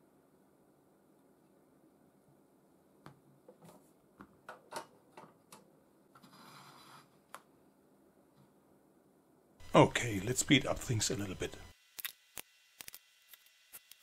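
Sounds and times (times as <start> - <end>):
rustling scrape: 6.2 - 7.2.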